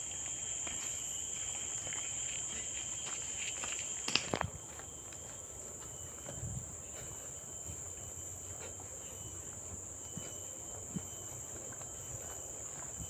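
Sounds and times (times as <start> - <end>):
forest insects droning: 0.0 - 13.0
footsteps on gravel: 0.1 - 7.8.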